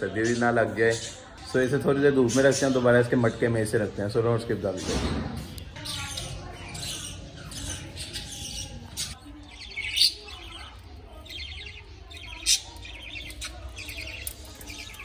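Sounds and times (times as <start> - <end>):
budgerigars chirping: 0.0 - 15.0.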